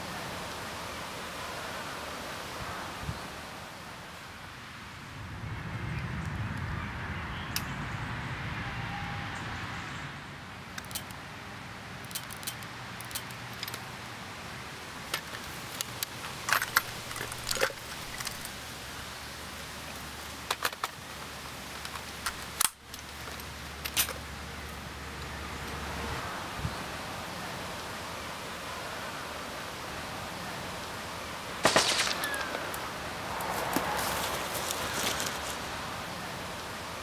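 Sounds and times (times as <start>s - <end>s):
rifle metallic clicks and rattles: 10.7s - 11.2s, 12.0s - 13.9s, 15.1s - 18.6s, 20.4s - 21.0s, 21.8s - 24.2s.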